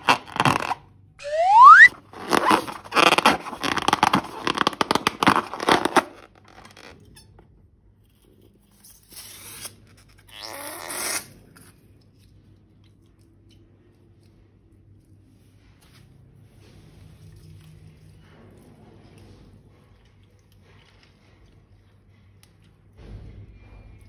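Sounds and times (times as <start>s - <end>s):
slime squelches: 0.0s - 6.1s
slime crackling and squishing: 0.0s - 6.9s.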